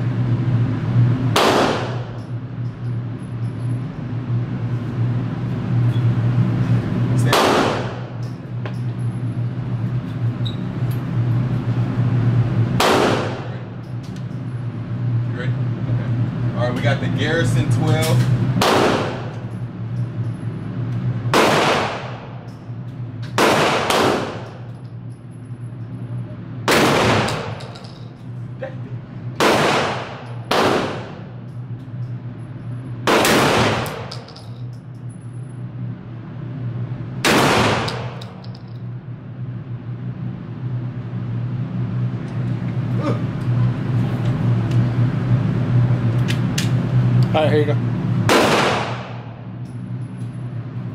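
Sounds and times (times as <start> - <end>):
steady low hum: 0.0 - 50.9
shotgun blasts echoing indoors: 1.0 - 2.3, 7.2 - 8.3, 12.7 - 13.8, 18.0 - 19.5, 21.2 - 22.6, 23.2 - 24.8, 26.6 - 28.1, 29.3 - 32.2, 33.0 - 34.6, 37.2 - 38.7, 48.2 - 49.5.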